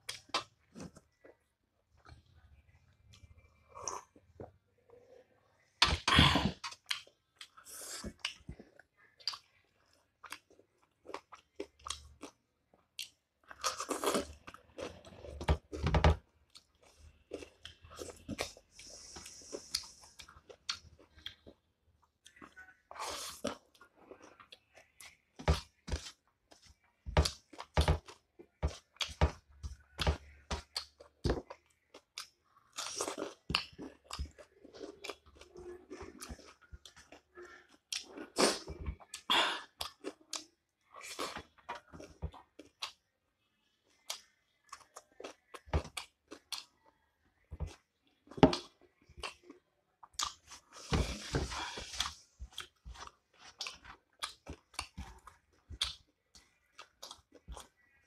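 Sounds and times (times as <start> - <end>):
person chewing and crunching food: 0.0 - 58.0.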